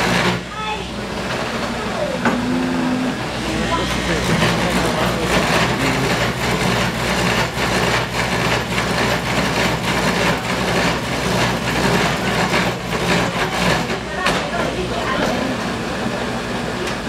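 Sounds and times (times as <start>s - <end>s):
motor hum: 0.0s - 13.8s
cutters rasping on wood: 3.4s - 14.6s.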